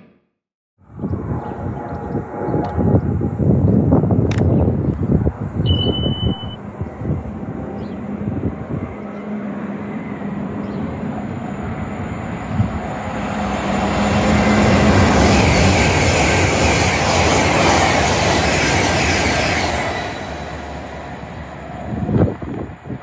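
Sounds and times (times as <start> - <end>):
wind on microphone: 0.8 - 9.2, 10.6 - 17.8, 21.6 - 23.0
train passing: 5.1 - 23.0.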